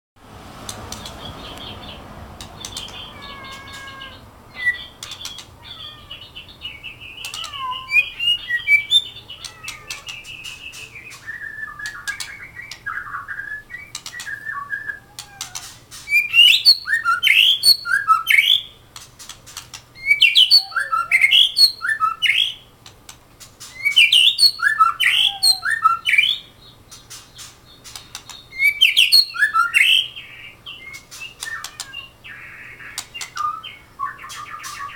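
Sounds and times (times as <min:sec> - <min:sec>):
sharp clicks: 0:00.6 - 0:01.7, 0:02.4 - 0:03.0, 0:05.0 - 0:05.6, 0:09.4 - 0:12.9, 0:13.8 - 0:14.4, 0:18.9 - 0:19.9, 0:27.0 - 0:28.5
bird singing whistled notes: 0:02.6 - 0:15.2, 0:16.1 - 0:18.8, 0:20.0 - 0:22.6, 0:23.8 - 0:26.8, 0:27.7 - 0:34.9.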